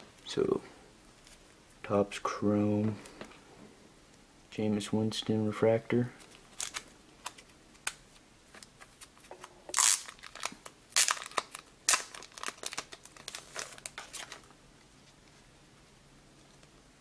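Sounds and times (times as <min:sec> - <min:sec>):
plastic wrapping crinkling: 0:06.2 - 0:14.6.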